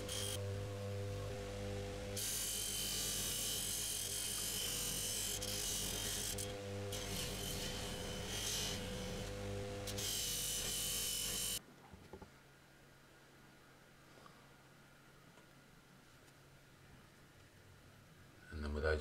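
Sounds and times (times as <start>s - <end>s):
polishing motor humming: 0.0s - 11.6s.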